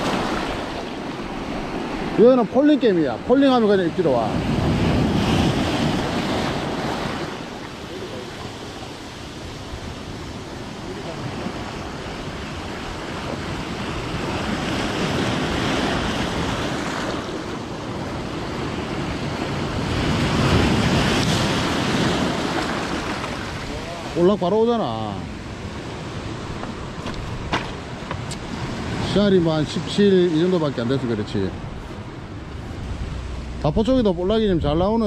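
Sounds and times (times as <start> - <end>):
waves breaking over rocks: 0.0 - 35.0
wind buffeting microphone: 3.1 - 24.2, 25.3 - 35.0.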